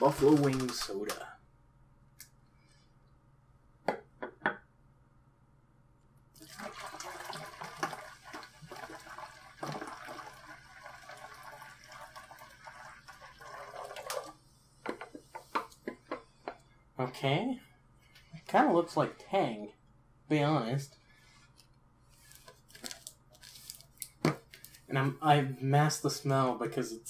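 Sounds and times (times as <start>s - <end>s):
soda pouring into a plastic jug: 6.4s - 14.4s.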